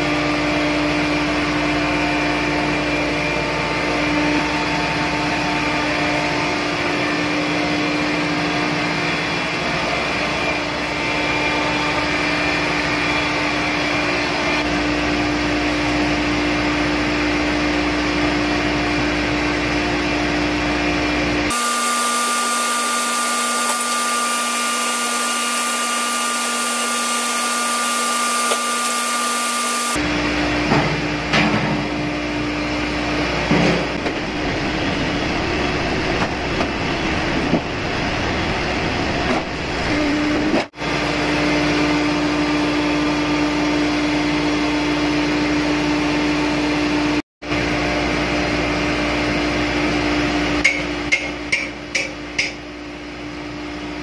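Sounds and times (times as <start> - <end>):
engine-room machinery drone: 0.0 - 54.0
higher steady whine: 31.9 - 48.7.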